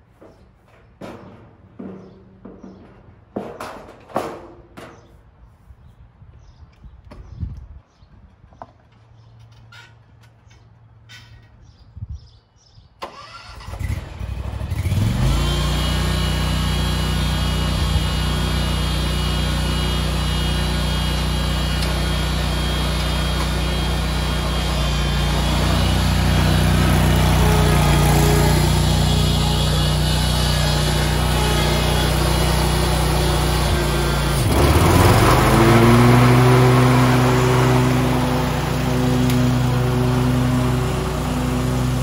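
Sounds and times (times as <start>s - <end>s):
mower engine starting and running: 0.0s - 5.1s, 13.0s - 42.0s.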